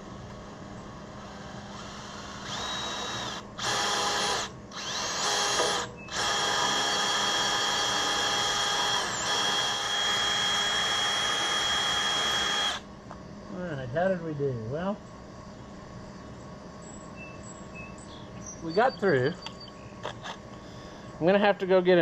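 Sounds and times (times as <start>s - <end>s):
electric drill whining: 1.1s - 12.8s.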